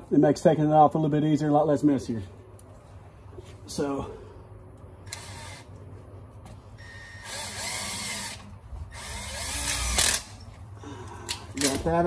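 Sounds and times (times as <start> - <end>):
cordless drill drilling through metal: 5.1 - 5.7, 6.8 - 10.3.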